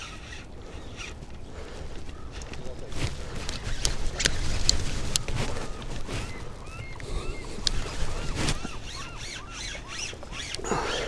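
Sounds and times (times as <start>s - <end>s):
river rumble: 0.0s - 11.0s
short rising and falling squeaks: 3.6s - 11.0s.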